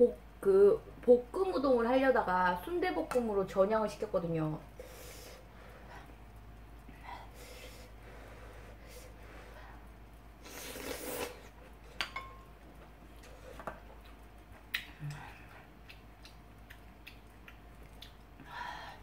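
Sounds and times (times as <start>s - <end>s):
soft chewing: 4.8s - 18.6s
noodles slurped: 10.4s - 11.6s.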